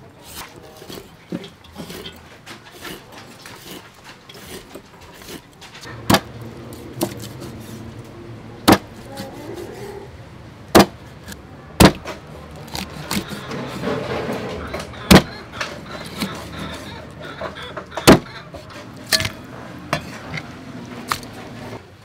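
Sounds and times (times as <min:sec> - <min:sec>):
cleaver chopping onto block: 0:10.7 - 0:13.3, 0:15.1 - 0:15.3.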